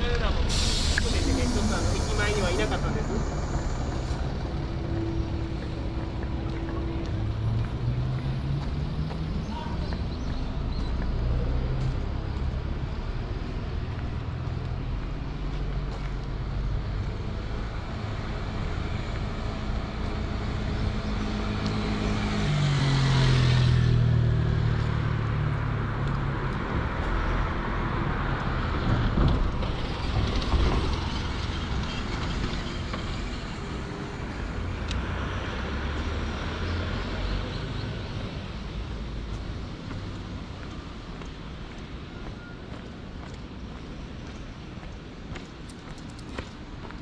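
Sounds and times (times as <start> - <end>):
steady drone of engines: 0.0 - 47.0
vehicle passing close by: 17.6 - 40.5.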